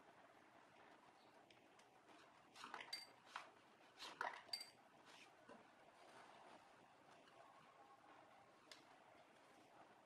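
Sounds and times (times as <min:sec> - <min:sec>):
soft handling noises: 0:05.0 - 0:07.5.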